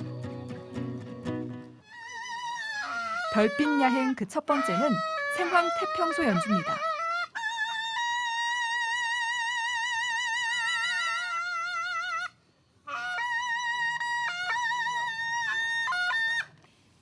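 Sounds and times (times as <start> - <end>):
double-reed shawm melody: 0.0 - 1.8.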